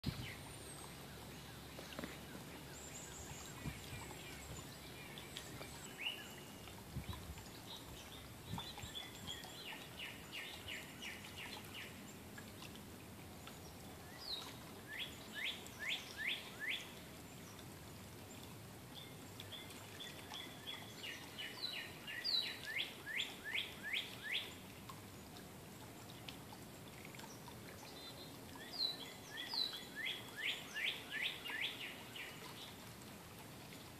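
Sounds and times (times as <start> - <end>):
songbird singing: 0.0 - 25.4, 27.1 - 32.8
faint outdoor background noise: 0.0 - 33.9.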